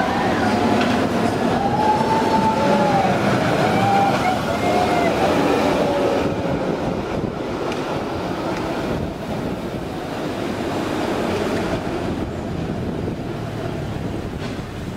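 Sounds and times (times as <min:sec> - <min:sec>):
cable cars rattling: 0:00.0 - 0:14.9
cars driving uphill: 0:00.0 - 0:14.9.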